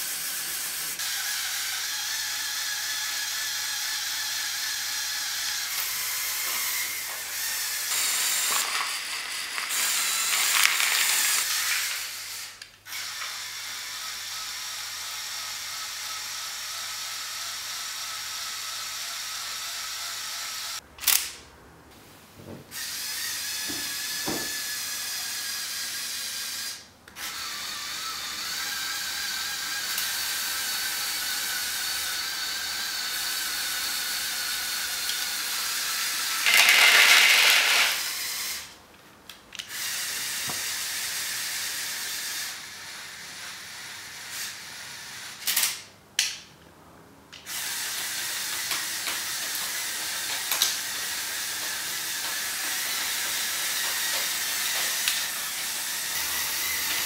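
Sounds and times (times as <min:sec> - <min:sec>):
toy electric motors whining: 0:00.0 - 0:21.4, 0:22.7 - 0:38.8, 0:39.6 - 0:45.9, 0:47.4 - 0:57.0
pellets rattling into plastic bowl: 0:07.9 - 0:11.9, 0:36.4 - 0:38.0.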